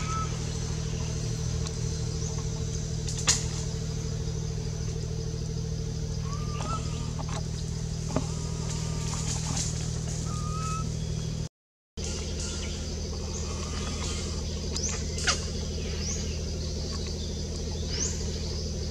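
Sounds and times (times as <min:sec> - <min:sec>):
high bird-like chirps: 0:00.0 - 0:01.4, 0:06.2 - 0:07.2, 0:10.2 - 0:11.4
low mechanical hum: 0:00.0 - 0:18.9.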